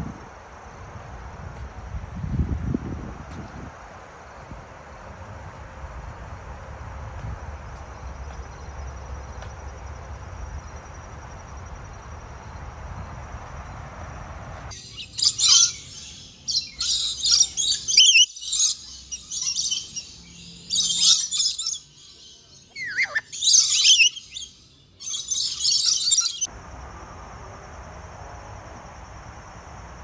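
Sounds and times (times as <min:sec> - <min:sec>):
downward-sweeping bird calls: 0:14.7 - 0:26.5
high-pitched bird chirping: 0:14.8 - 0:26.5.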